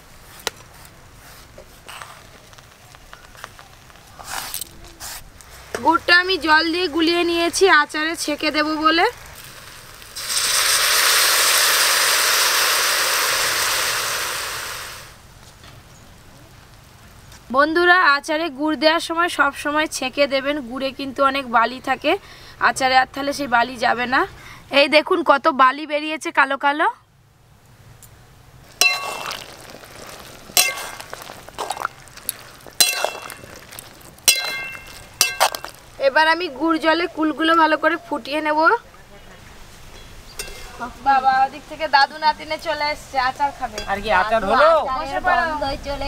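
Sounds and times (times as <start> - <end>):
oil sizzling loudly: 6.4 - 15.2, 28.7 - 36.0
soft stirring noise: 28.7 - 36.0
metal spatula clinking on pan: 32.8 - 33.4, 34.3 - 35.7, 40.4 - 40.7.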